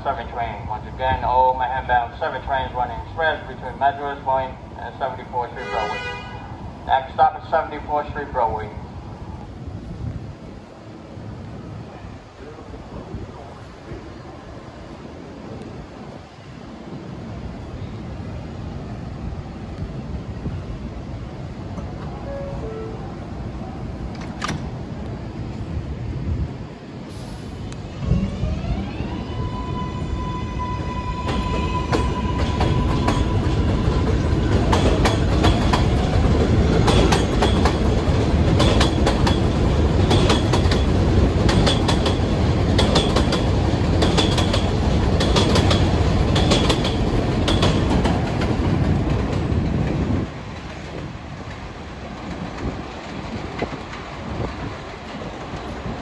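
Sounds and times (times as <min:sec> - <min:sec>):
subway train motors whining: 0:00.0 - 0:56.0
wheels clattering over rail joints: 0:31.3 - 0:56.0.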